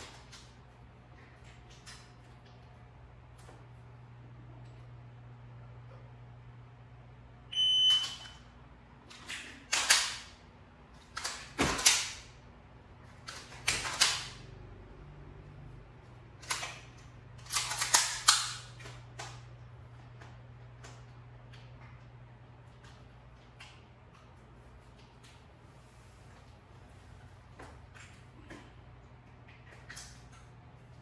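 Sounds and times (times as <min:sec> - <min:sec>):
electronic beep: 0:07.5 - 0:08.3.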